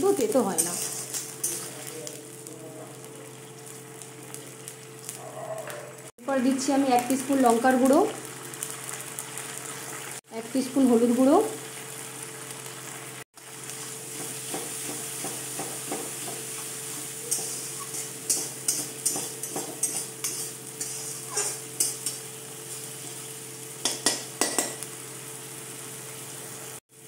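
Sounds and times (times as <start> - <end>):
spices sizzling in oil: 0.0 - 5.3, 5.9 - 27.0
metal spatula scraping a pan: 0.6 - 1.9, 16.6 - 22.2.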